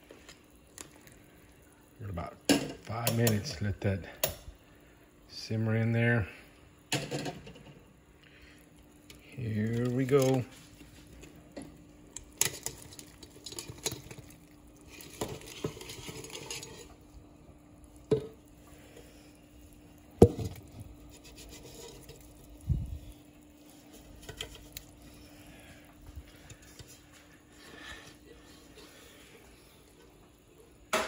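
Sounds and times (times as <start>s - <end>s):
low hum: 14.1s - 30.7s.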